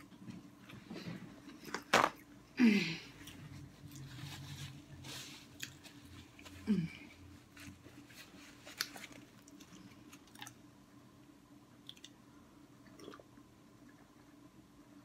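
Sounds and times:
faint chewing of food: 0:05.4 - 0:07.1, 0:07.7 - 0:10.6.

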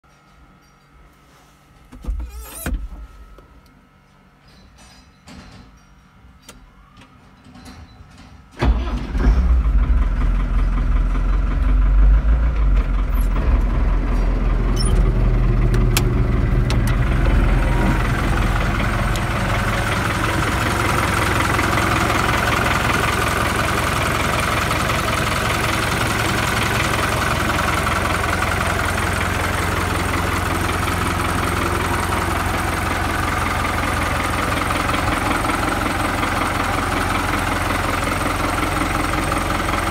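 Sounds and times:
tractor diesel engine starting and idling: 0:08.5 - 0:39.9.

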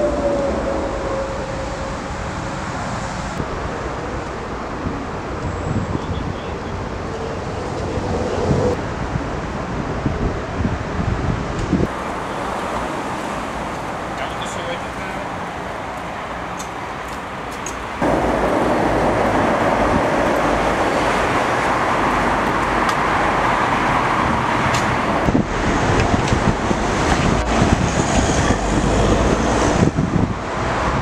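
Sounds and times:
road traffic noise: 0:00.0 - 0:31.0
car driving off: 0:17.9 - 0:30.6.

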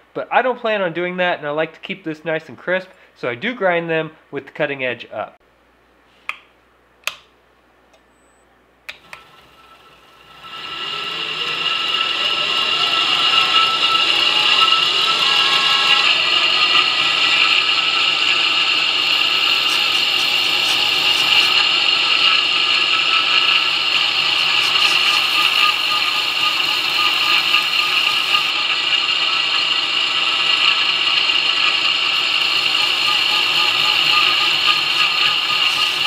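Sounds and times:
belt grinder running: 0:09.0 - 0:36.0
knife blade grinding on belt: 0:14.3 - 0:22.4.

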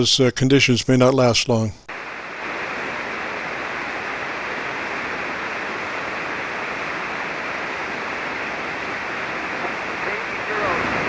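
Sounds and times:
radio receiver static hiss: 0:01.1 - 0:11.0.

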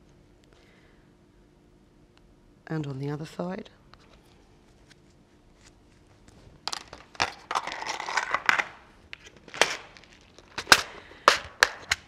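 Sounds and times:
crinkly rustling: 0:04.0 - 0:11.2.

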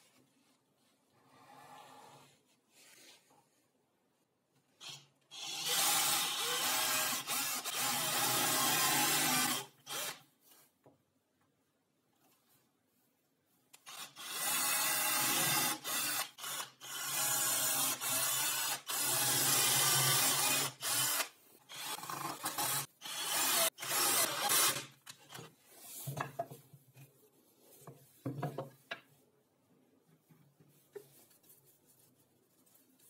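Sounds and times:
cordless drill boring into wood: 0:04.8 - 0:10.2, 0:13.9 - 0:24.9.

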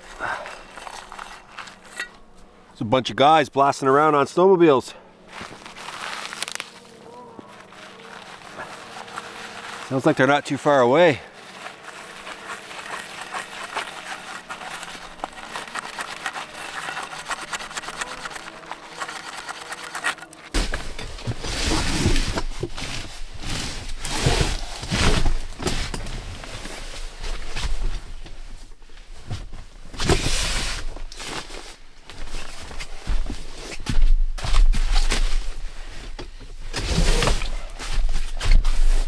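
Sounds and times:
nylon sleeping bag rustling: 0:00.0 - 0:01.9, 0:05.3 - 0:39.0
snowmobile engines droning: 0:06.6 - 0:20.5
frying pan scraped with snow: 0:07.6 - 0:20.5.

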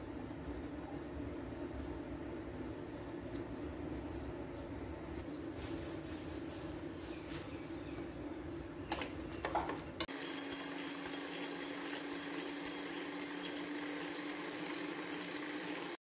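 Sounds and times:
electric hand mixer humming: 0:10.1 - 0:16.0.

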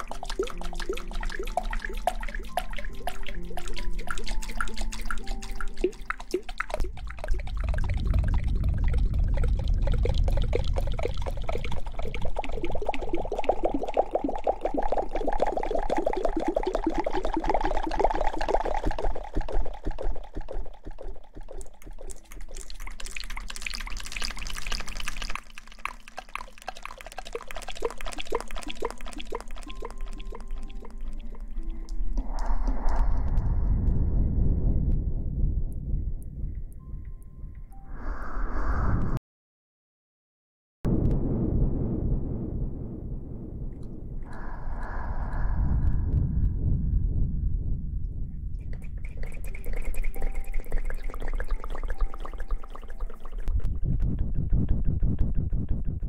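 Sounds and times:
squishy object squeezed wet crackling: 0:18.8 - 0:32.5.

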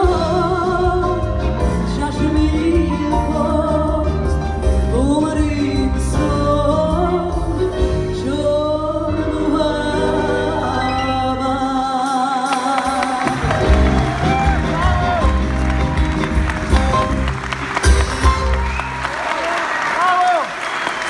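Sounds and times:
woman singing with vibrato: 0:00.0 - 0:15.2
live rock band playing: 0:00.0 - 0:19.4.

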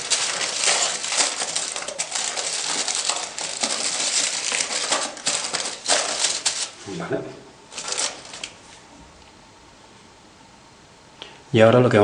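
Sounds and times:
aluminium foil crinkling: 0:00.0 - 0:06.8, 0:07.7 - 0:08.8.

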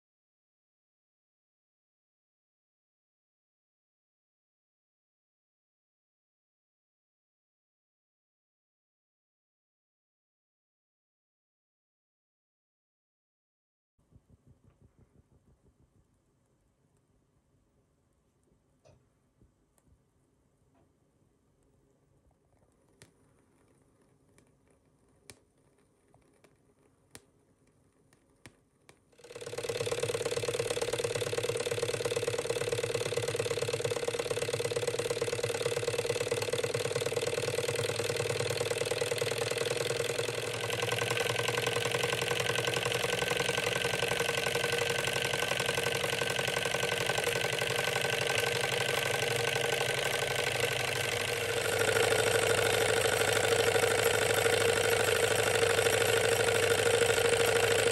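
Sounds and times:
hot air engine running: 0:29.2 - 0:57.9
steady mechanical clatter: 0:29.2 - 0:57.9.

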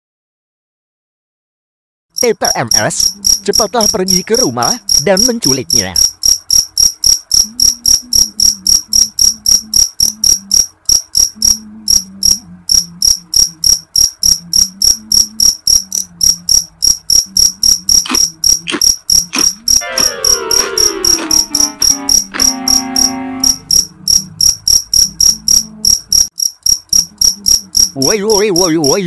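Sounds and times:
crickets chirping: 0:02.2 - 0:29.0
sliding tone falling in pitch: 0:19.8 - 0:23.7.

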